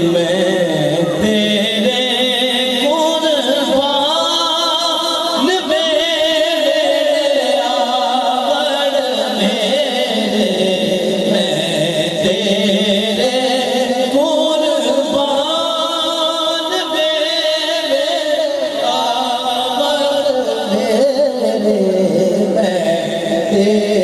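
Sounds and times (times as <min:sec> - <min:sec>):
man singing devotional song: 0:00.0 - 0:24.0.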